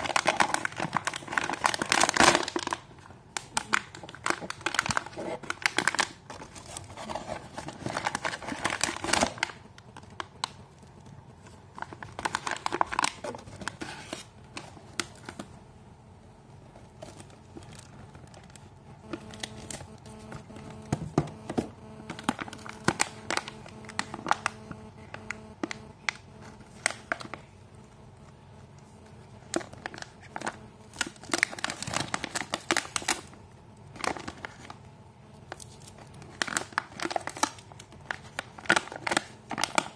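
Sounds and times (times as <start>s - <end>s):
plastic packets crinkling: 0.0s - 15.6s, 16.6s - 34.8s, 35.4s - 39.9s.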